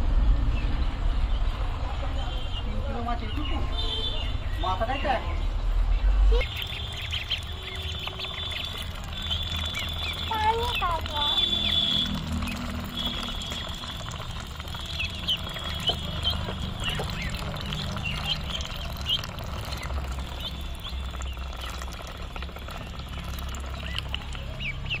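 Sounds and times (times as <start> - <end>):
low steady rumble: 5.5 - 25.0
ducklings peeping: 5.9 - 25.0.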